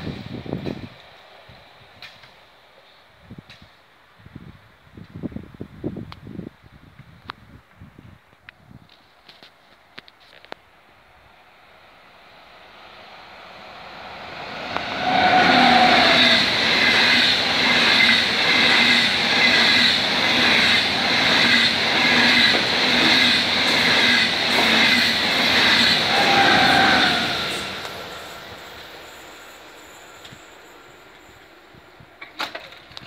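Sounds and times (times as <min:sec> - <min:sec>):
high-speed train passing: 0:00.0 - 0:03.6, 0:10.7 - 0:32.4
train wheels rushing on rail: 0:00.0 - 0:03.8, 0:11.5 - 0:32.3
train whine: 0:10.8 - 0:32.3.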